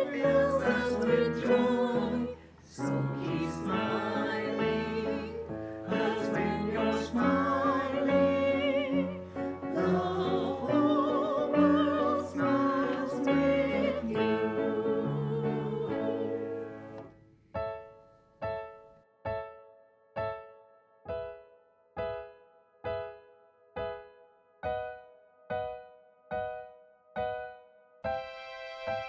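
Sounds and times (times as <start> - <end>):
group of voices singing: 0.0 - 17.0.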